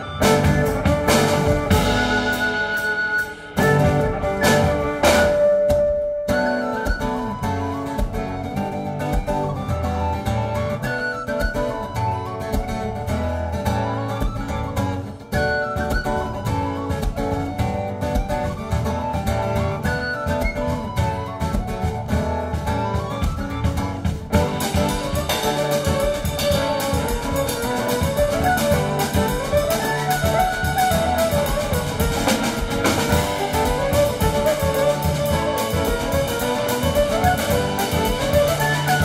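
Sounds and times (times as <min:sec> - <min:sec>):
violin melody: 0:00.0 - 0:05.8, 0:24.3 - 0:39.0
acoustic guitar: 0:00.0 - 0:39.0
drum kit: 0:00.0 - 0:39.0.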